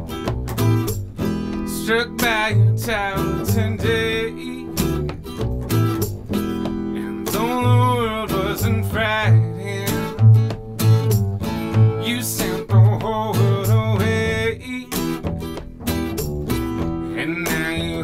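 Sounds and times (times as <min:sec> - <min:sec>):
acoustic guitar strumming: 0:00.0 - 0:18.0
man singing: 0:01.6 - 0:05.2, 0:06.9 - 0:10.6, 0:11.8 - 0:15.3, 0:17.0 - 0:18.0.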